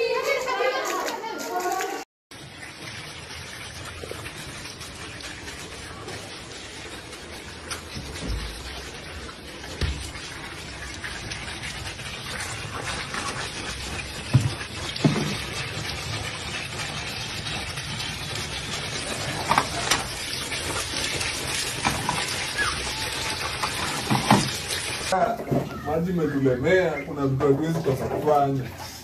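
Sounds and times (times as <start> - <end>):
short knocks or splashes: 14.2 - 15.6.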